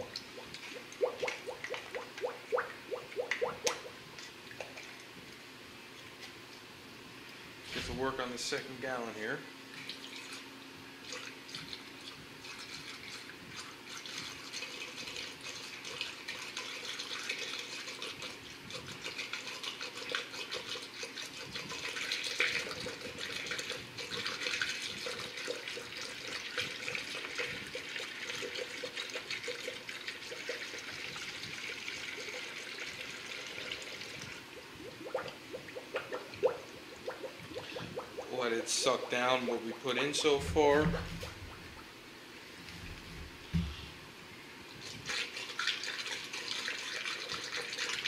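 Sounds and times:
liquid pouring into funnel: 0:11.0 - 0:41.8, 0:44.8 - 0:48.0.

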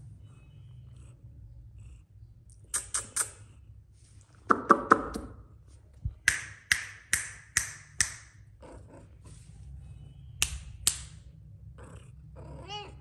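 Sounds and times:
sharp high clicks: 0:02.6 - 0:03.4.

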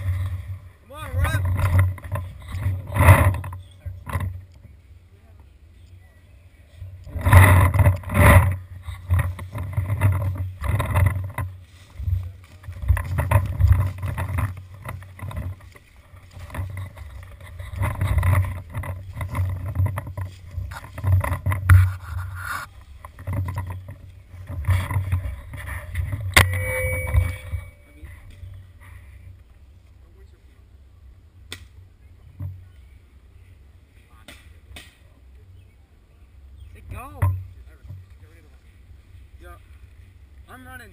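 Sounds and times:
camera thumps and rubbing: 0:00.0 - 0:04.4, 0:07.1 - 0:28.6
footsteps crunching dry leaves: 0:11.5 - 0:25.9.

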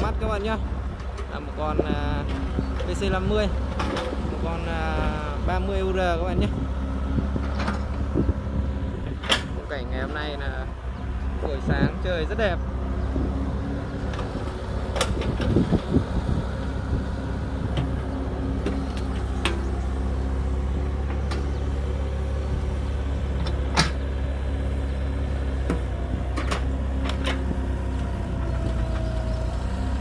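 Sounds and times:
excavator diesel engine running: 0:00.0 - 0:30.0.

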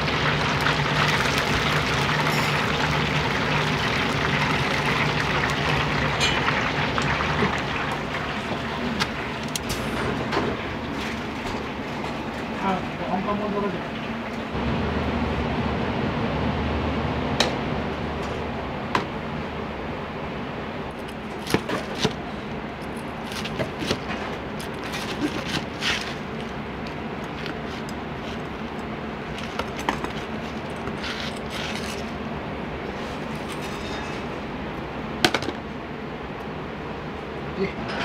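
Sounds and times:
steady background hum: 0:00.0 - 0:38.0
dishes and utensils clinking: 0:02.2 - 0:02.9, 0:06.2 - 0:06.6, 0:33.4 - 0:34.4.

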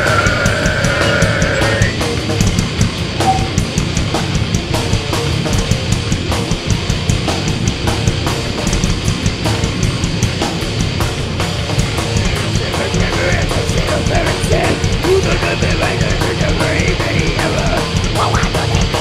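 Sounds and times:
bass guitar: 0:00.0 - 0:19.0
distorted guitars: 0:00.0 - 0:19.0
rapid driving drumming: 0:00.0 - 0:19.0
high wavering melody line: 0:03.2 - 0:03.7.

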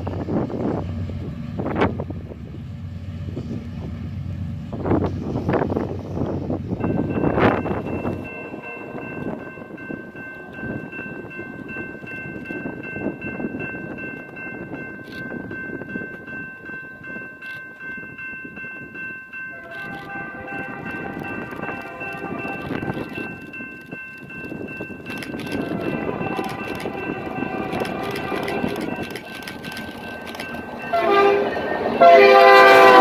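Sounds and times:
freight train rushing: 0:00.0 - 0:33.0
locomotive air horn chord: 0:19.5 - 0:23.4, 0:25.5 - 0:28.7, 0:30.8 - 0:33.0.

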